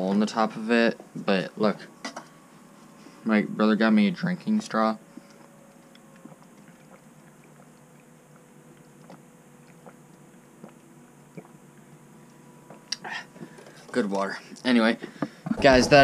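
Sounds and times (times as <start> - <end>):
faint steady hum: 0.0 - 16.0
sucking through a straw: 8.8 - 11.6.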